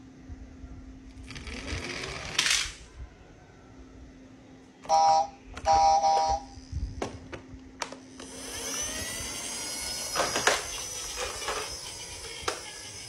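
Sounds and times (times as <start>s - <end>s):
toy truck electronic honks: 4.9s - 6.6s.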